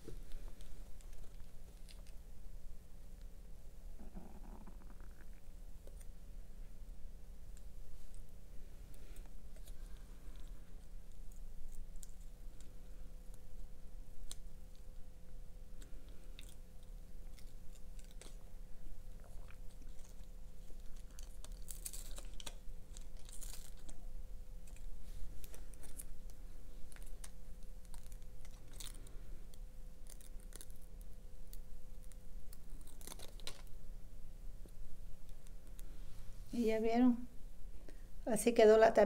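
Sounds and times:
faint steady hum: 0.0s - 39.0s
paper crinkling: 19.1s - 33.8s.

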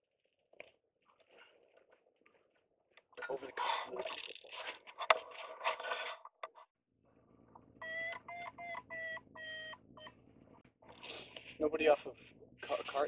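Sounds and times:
variometer beeping: 7.8s - 10.2s.

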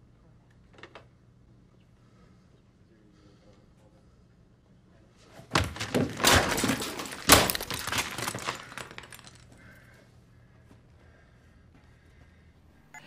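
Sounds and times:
keyboard smashing against desk: 5.5s - 9.5s.

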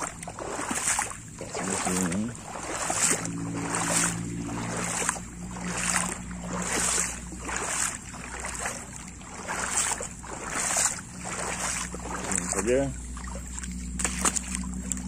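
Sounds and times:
footsteps wading through shallow water: 0.0s - 15.0s.

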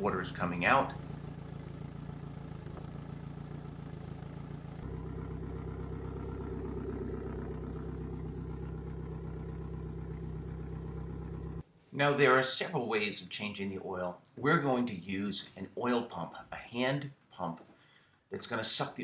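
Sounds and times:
outboard motor idling: 0.0s - 11.6s.

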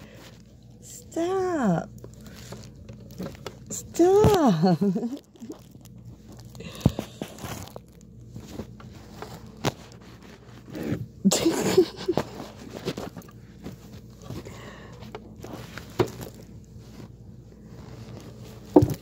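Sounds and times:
fabric rustling on microphone: 4.0s - 11.2s, 11.9s - 19.0s.

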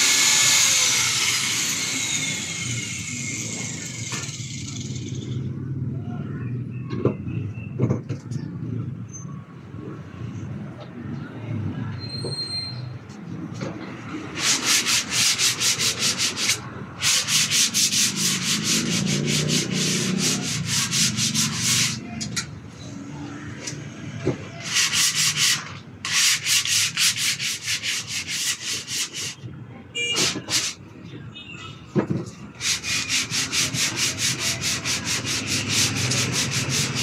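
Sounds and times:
hand sanding wooden board: 14.3s - 22.1s, 24.6s - 29.4s, 30.2s - 30.8s, 32.6s - 37.0s.

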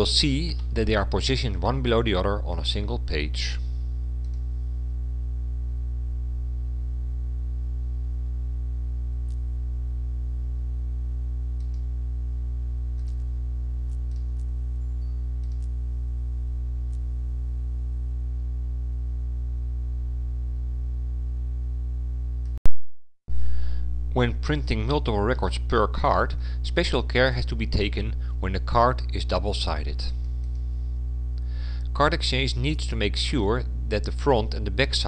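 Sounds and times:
mains hum: 0.0s - 22.6s, 23.3s - 35.0s
faint mouse clicks: 4.2s - 4.4s, 11.6s - 11.9s, 13.0s - 13.3s, 13.9s - 14.5s, 15.4s - 15.8s.

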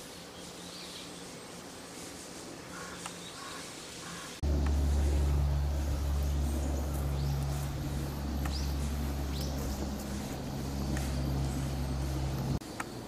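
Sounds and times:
low mechanical hum: 0.0s - 13.0s
rising bird chirps: 3.3s - 12.6s.

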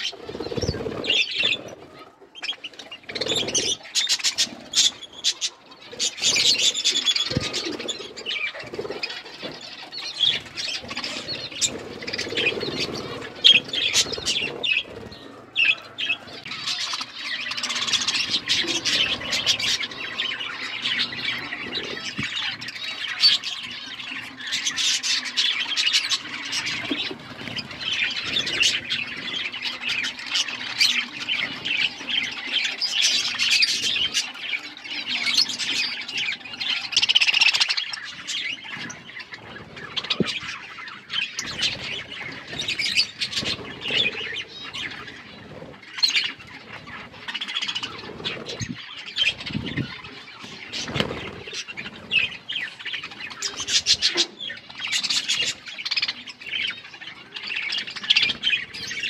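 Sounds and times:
budgerigars chattering: 0.0s - 59.0s.

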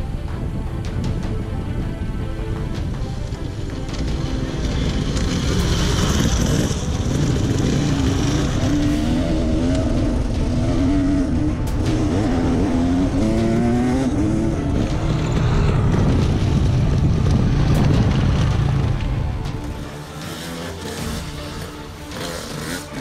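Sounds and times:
dirt bike engine revving: 4.6s - 16.7s, 19.7s - 23.0s.

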